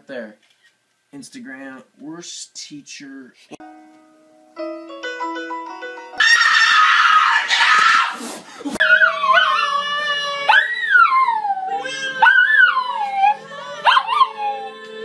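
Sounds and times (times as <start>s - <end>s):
soft musical notes: 3.6s - 6.2s
dog howling: 6.2s - 8.2s, 8.8s - 14.9s
loud scream: 6.2s - 8.2s
man howling: 6.2s - 8.2s, 8.8s - 14.8s.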